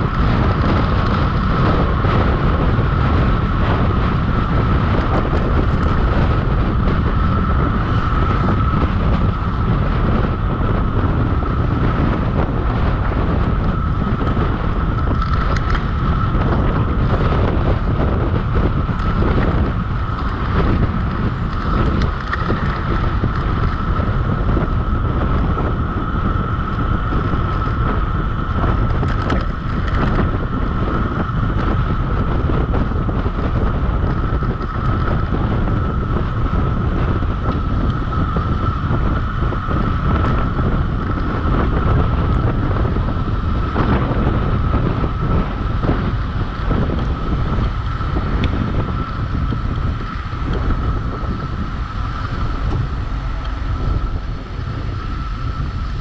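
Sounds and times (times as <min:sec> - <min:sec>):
high-pitched hum: 0:00.0 - 0:56.0
wind buffeting microphone: 0:00.0 - 0:56.0.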